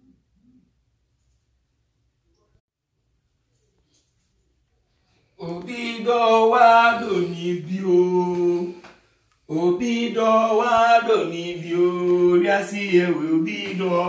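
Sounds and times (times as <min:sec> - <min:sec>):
man singing chant-like notes: 0:05.4 - 0:08.9, 0:09.5 - 0:14.0.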